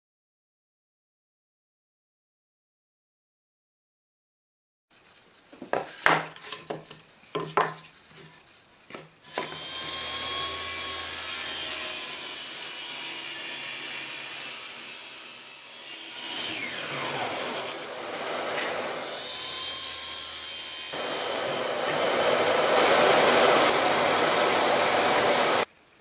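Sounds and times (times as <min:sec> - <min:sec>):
wooden knocks and clatters: 0:05.6 - 0:07.9
table saw ripping board: 0:09.3 - 0:12.3, 0:16.1 - 0:25.7.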